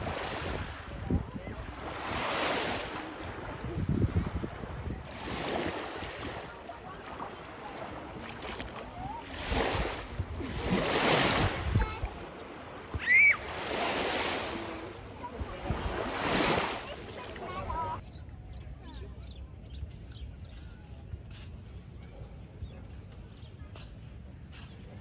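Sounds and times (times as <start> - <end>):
small waves washing on shore: 0.0 - 18.0.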